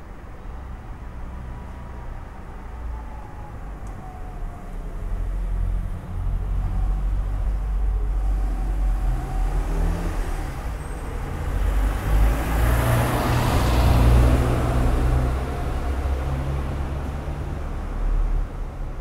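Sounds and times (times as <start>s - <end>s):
vehicle driving past: 5.3s - 18.4s.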